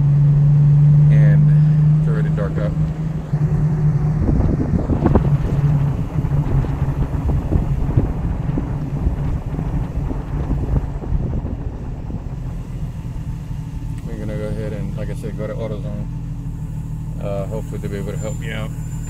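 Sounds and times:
car engine and tyre drone: 0:00.0 - 0:19.0
wind on microphone: 0:01.6 - 0:14.0.

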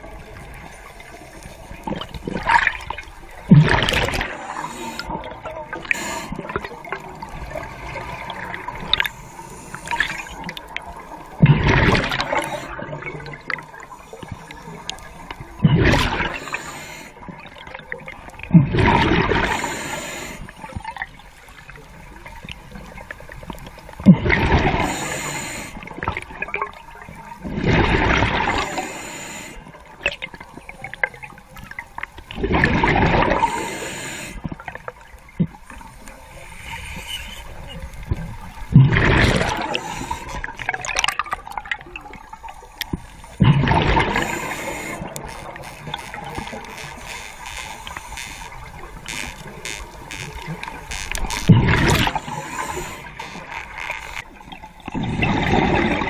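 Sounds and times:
exhaled bubbles gurgling: 0:00.0 - 0:56.0
regulator hissing on inhale: 0:04.3 - 0:05.2, 0:05.8 - 0:06.6, 0:09.0 - 0:10.5, 0:12.1 - 0:12.8, 0:16.1 - 0:17.2, 0:19.3 - 0:20.6, 0:24.6 - 0:25.9, 0:28.5 - 0:29.8, 0:33.3 - 0:34.5, 0:35.7 - 0:38.1, 0:39.5 - 0:40.6, 0:44.0 - 0:50.4, 0:51.1 - 0:54.2.

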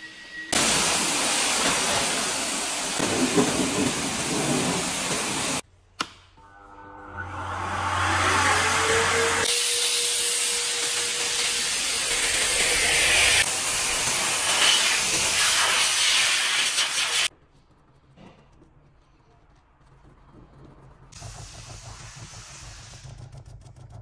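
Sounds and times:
air blower rushing: 0:07.2 - 0:16.0.

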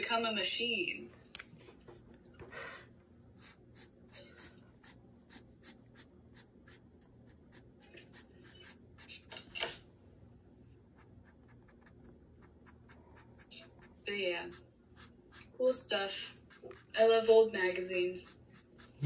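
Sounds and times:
drawing tool scratching on paper: 0:03.4 - 0:09.5, 0:11.0 - 0:19.0.

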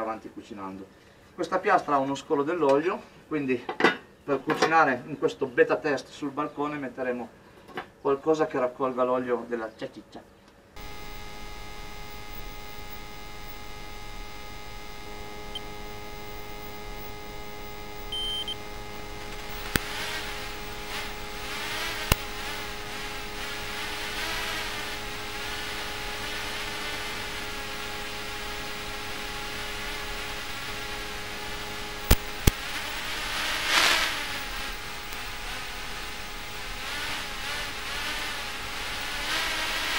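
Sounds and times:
sharp clicks: 0:10.8 - 0:22.8, 0:32.0 - 0:32.9
hiss with wavering tones: 0:10.8 - 0:39.9
steady electrical hum: 0:10.8 - 0:39.9.

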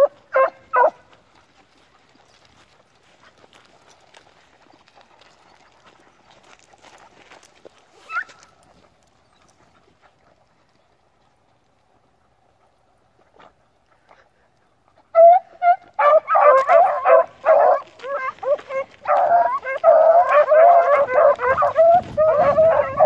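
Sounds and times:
animal high wavering cries: 0:18.0 - 0:23.0.

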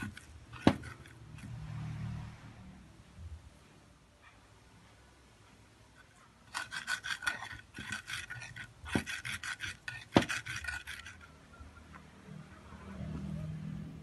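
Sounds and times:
pestle knocking against mortar: 0:00.0 - 0:01.0, 0:07.4 - 0:11.0
pestle scraping in mortar: 0:00.0 - 0:01.6, 0:06.0 - 0:11.4.

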